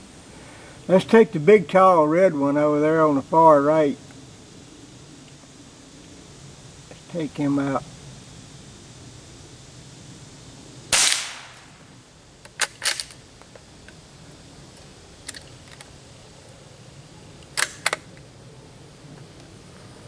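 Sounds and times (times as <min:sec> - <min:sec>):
rifle shot: 0:10.9 - 0:11.8
sharp rifle bolt clicks: 0:12.4 - 0:13.2, 0:17.4 - 0:18.2.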